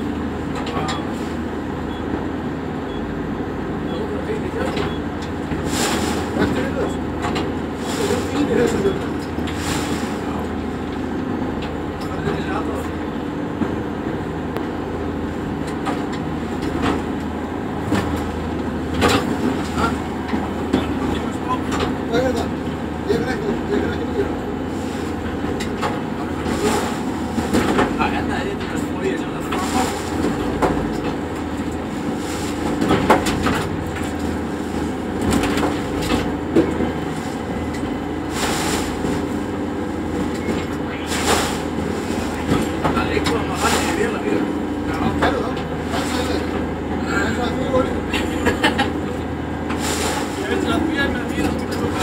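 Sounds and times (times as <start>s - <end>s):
boat engines running: 0.0s - 52.0s
hull slamming waves: 7.8s - 10.4s.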